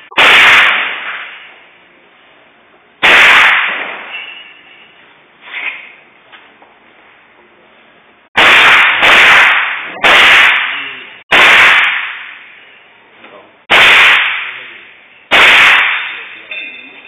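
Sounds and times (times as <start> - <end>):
rifle shots echoing: 0.2 - 1.5, 3.0 - 4.1, 8.4 - 12.4, 13.7 - 16.3.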